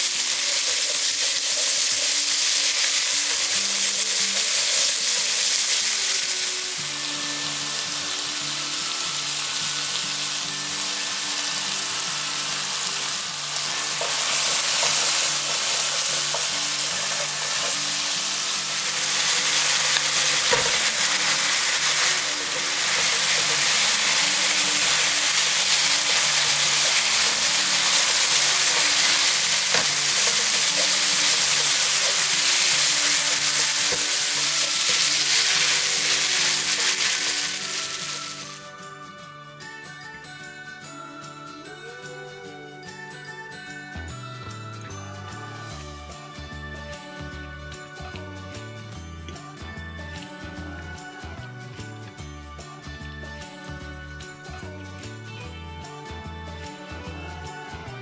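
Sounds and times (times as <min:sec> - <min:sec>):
food sizzling in a frying pan: 0:00.0 - 0:38.8
spatula stirring in a pan: 0:13.6 - 0:38.5.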